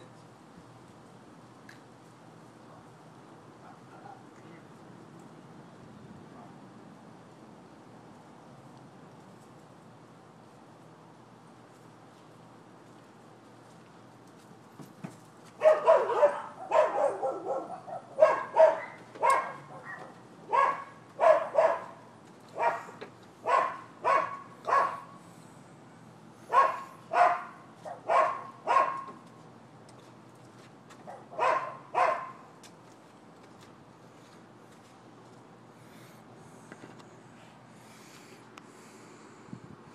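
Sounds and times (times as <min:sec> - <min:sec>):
dog barking: 0:15.6 - 0:22.0, 0:22.6 - 0:25.2, 0:26.5 - 0:29.1, 0:31.0 - 0:32.4.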